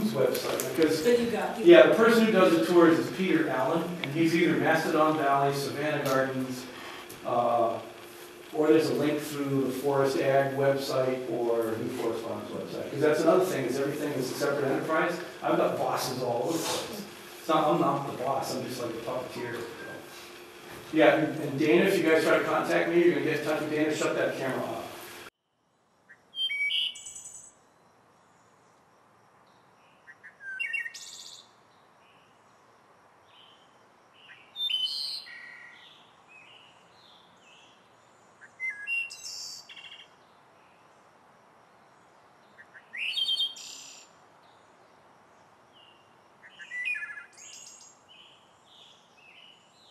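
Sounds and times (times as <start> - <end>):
faint steady hiss: 0.0 - 26.2, 27.0 - 49.9
songbird singing high phrases: 26.1 - 27.6, 29.8 - 32.3, 33.3 - 40.9, 42.4 - 44.7, 45.7 - 49.9.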